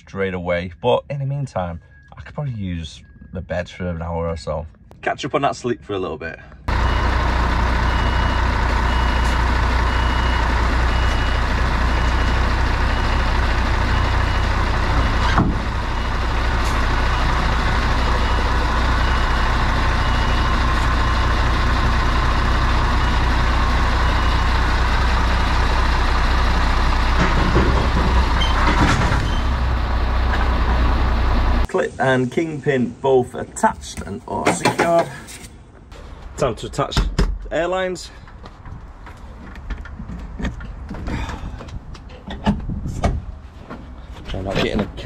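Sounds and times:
reversing alarm beeping: 1.8s - 2.2s, 2.9s - 3.5s, 6.7s - 26.9s
diesel truck engine running: 6.6s - 33.0s.

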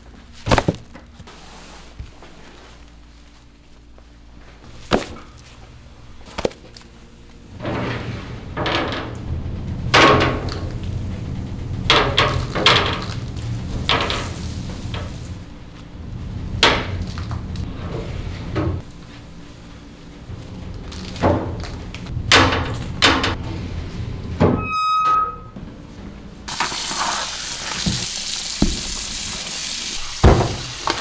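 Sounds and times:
steady low rumble: 3.6s - 24.6s.

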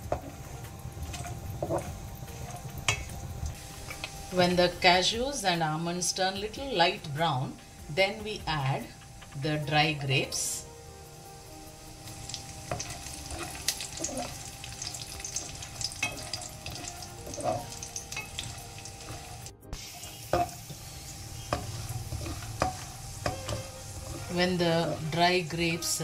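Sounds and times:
nuts sizzling in hot oil: 0.0s - 26.0s
spoon scraping a metal pan: 0.1s - 3.1s, 12.6s - 26.0s.

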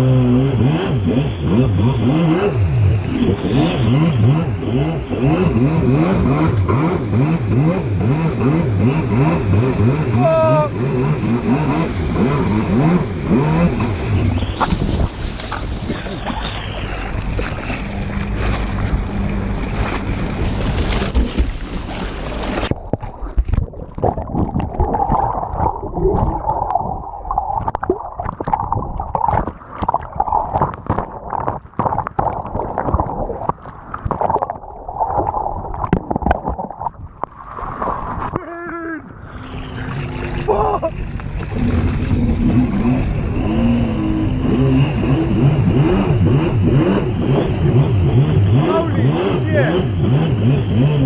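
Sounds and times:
jet ski engine running hard: 0.0s - 22.7s, 39.2s - 51.0s
wind: 0.0s - 51.0s
rushing water spray: 2.2s - 22.8s
muffled underwater bubbling: 20.4s - 37.3s.

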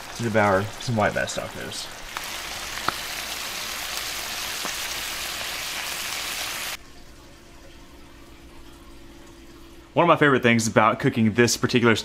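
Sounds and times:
fish sizzling in butter: 0.0s - 6.8s.

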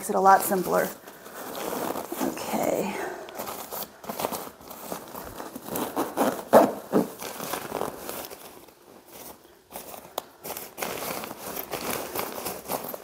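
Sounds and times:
tent fabric rustling: 0.0s - 13.0s
bag zipper pulled: 5.7s - 7.8s.

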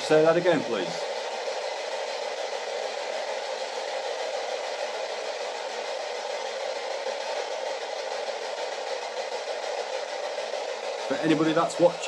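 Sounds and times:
radio static hiss: 0.0s - 1.3s, 11.0s - 12.0s.

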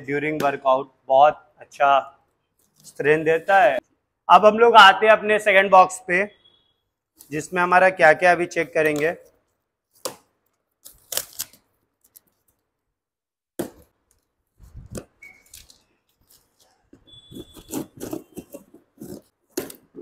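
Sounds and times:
scissors slitting packing tape: 10.0s - 12.4s, 14.9s - 16.7s, 17.3s - 20.0s
tape peeled off cardboard: 10.8s - 12.6s, 14.6s - 19.9s.

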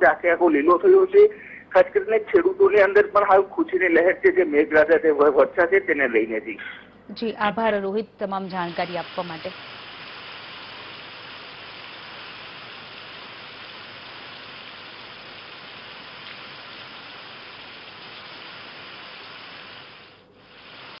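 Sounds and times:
heavy rain falling: 8.7s - 21.0s.

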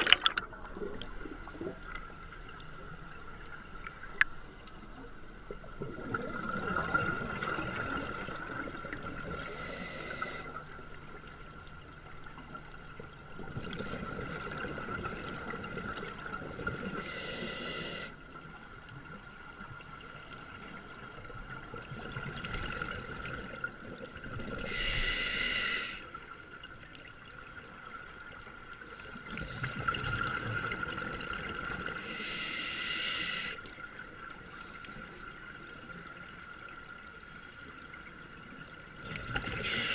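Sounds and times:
diver breathing through regulator: 9.4s - 10.5s, 17.0s - 18.2s, 24.7s - 26.0s, 32.0s - 33.6s, 39.6s - 39.9s.

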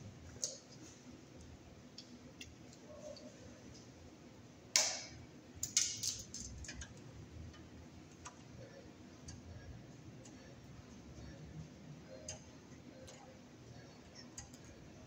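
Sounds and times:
wire stripper snap: 4.8s - 6.2s
wire strippers clicking on metal: 4.8s - 8.5s, 14.1s - 14.8s.

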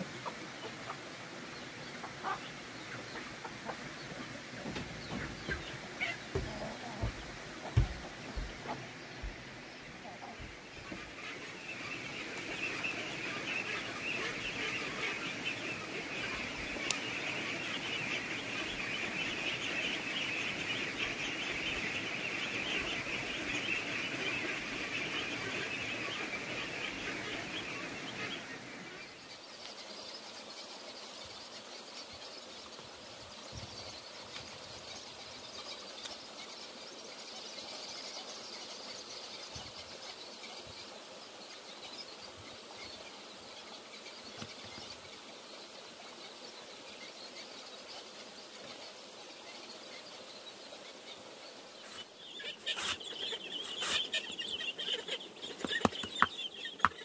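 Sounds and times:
chickens clucking: 0.0s - 29.1s, 51.9s - 57.0s
steady high hiss: 0.0s - 57.0s.

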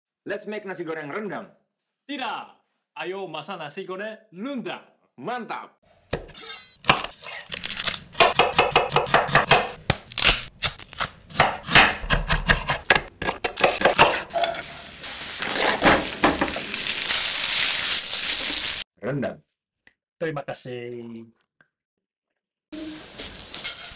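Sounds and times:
knife chopping on wooden board: 8.2s - 10.0s, 11.3s - 14.2s
rice sizzling in a pan: 14.3s - 18.8s, 22.8s - 23.9s.

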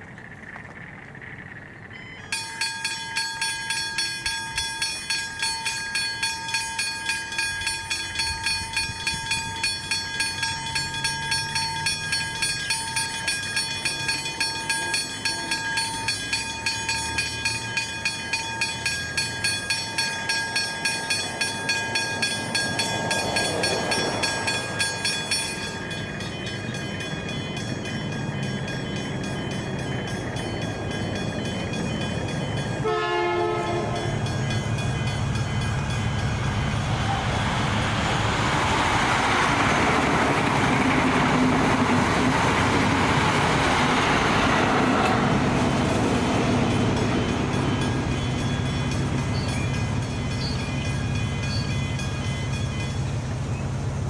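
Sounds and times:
low train rumble: 0.0s - 54.0s
level crossing bells ringing: 1.9s - 36.9s, 46.0s - 53.3s
horn blast: 32.8s - 34.0s.

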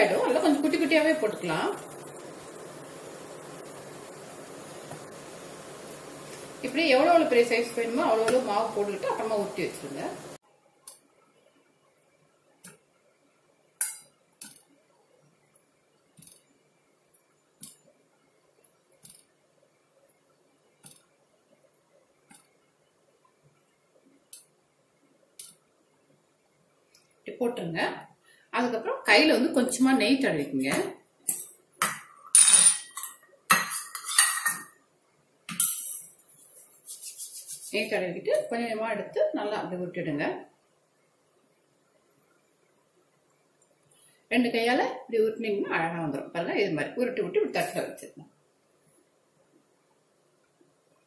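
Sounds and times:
metal utensils clinking: 31.3s - 34.7s, 35.5s - 36.1s.

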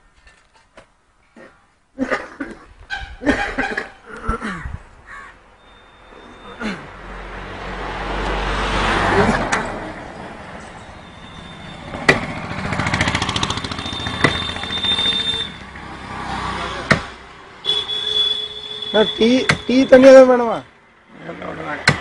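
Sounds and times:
vehicles passing: 2.4s - 22.0s
pulsing engine beat: 11.8s - 15.6s
sharp knocks: 12.0s - 12.4s, 14.1s - 14.6s, 16.8s - 17.2s, 19.4s - 19.8s.

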